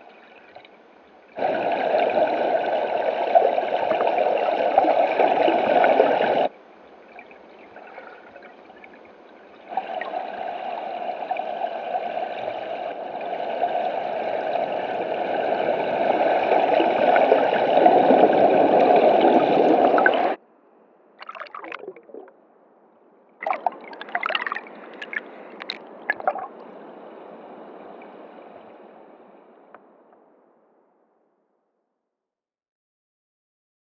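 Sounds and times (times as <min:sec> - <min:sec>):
river water rushing underwater: 0:01.4 - 0:06.5, 0:09.6 - 0:20.4, 0:21.2 - 0:22.4, 0:23.4 - 0:29.7.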